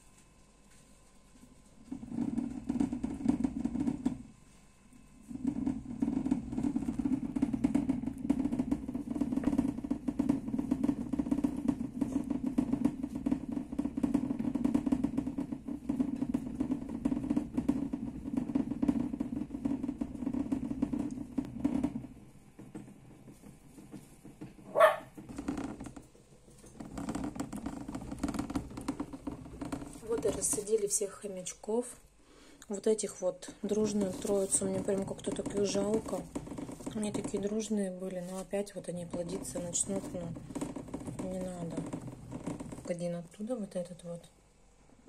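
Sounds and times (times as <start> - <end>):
hamster wheel rattling: 1.8 - 4.3, 5.2 - 31.7, 33.6 - 44.1.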